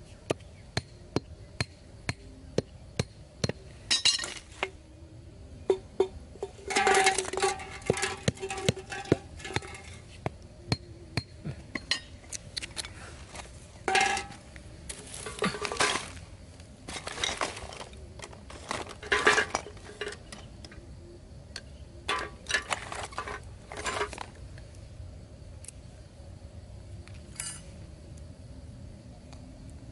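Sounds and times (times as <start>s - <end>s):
clinks and scrapes of handling: 6.4s - 10.2s, 11.7s - 16.2s, 16.9s - 20.5s, 22.1s - 24.4s, 27.3s - 27.7s.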